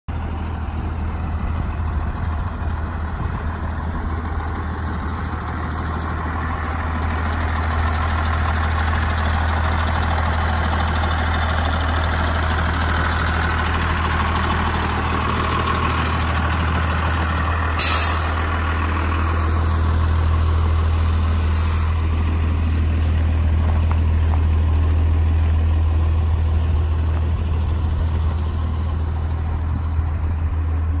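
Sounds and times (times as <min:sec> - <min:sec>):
bus engine idling: 0:00.1 - 0:31.0
hissing air: 0:17.7 - 0:18.8, 0:19.4 - 0:22.1.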